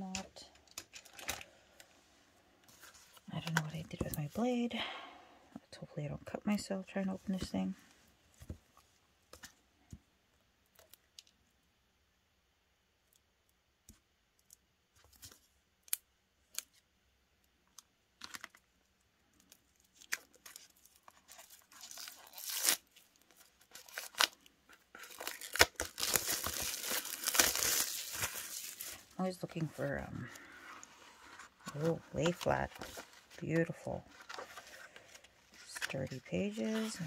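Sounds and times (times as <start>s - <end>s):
plastic wrapping crinkling and tearing: 0.6s - 1.5s, 18.2s - 18.7s, 19.4s - 37.0s.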